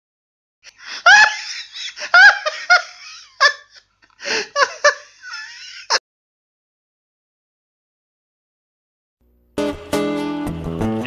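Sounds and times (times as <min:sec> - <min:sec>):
high-pitched laugh: 0:00.7 - 0:06.0.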